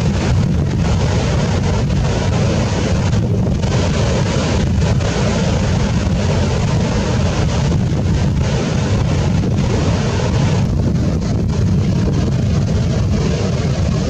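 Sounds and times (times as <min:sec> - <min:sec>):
ocean surf breaking: 0:00.0 - 0:14.0
wind buffeting microphone: 0:00.0 - 0:14.0.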